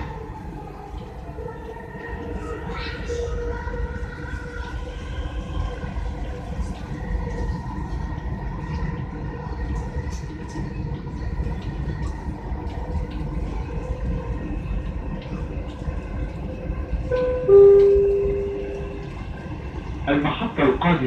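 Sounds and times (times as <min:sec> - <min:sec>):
faint steady tones: 0:00.0 - 0:21.0
train rumble inside carriage: 0:00.0 - 0:21.0.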